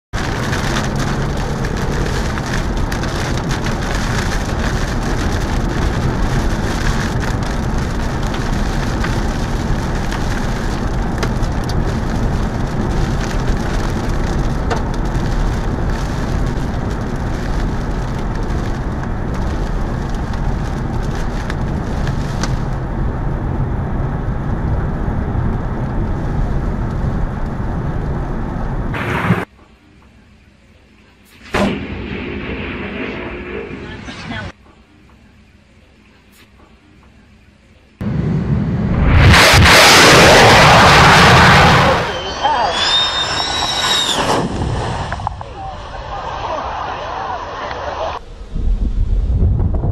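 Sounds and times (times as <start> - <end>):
raindrops tapping windshield: 0.2 - 22.8
rain rushing on a moving car: 0.2 - 29.0.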